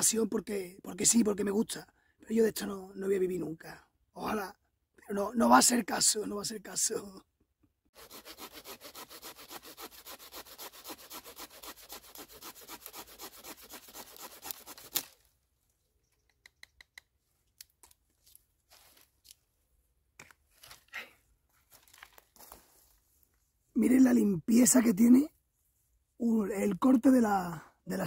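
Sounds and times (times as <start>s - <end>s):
hand saw cutting wood: 7.9s - 15.2s.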